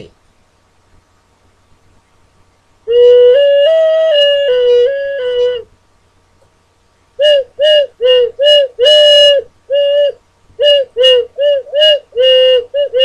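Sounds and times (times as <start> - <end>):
ocarina notes: 2.9 - 5.7, 7.2 - 13.0.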